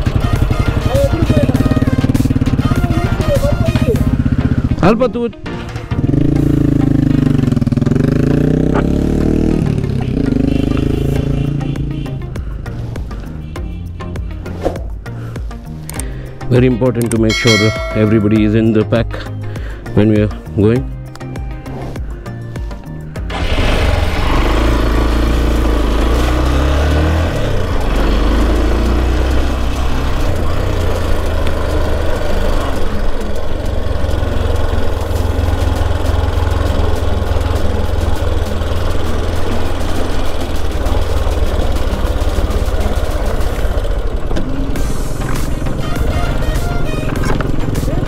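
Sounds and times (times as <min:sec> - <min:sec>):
motorcycle engine running: 0:00.0 - 0:15.6, 0:17.3 - 0:48.0.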